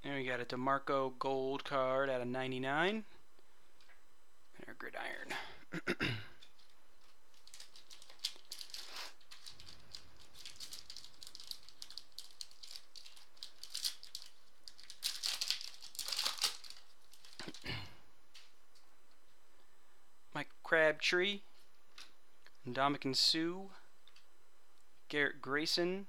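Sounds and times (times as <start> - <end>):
cards rustling: 6.4 - 17.6
foil wrapper crinkling and tearing: 6.6 - 17.7.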